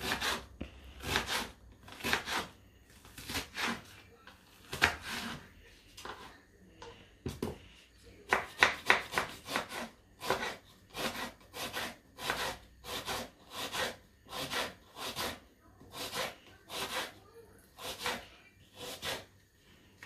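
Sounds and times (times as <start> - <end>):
knife slicing onion on wooden board: 0.0 - 2.6, 3.2 - 3.9, 4.6 - 5.4, 8.3 - 19.3.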